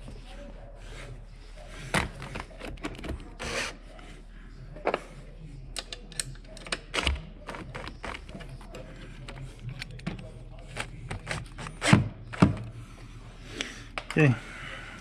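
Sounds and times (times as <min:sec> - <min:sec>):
clicks and knocks of tools: 0:05.7 - 0:08.4.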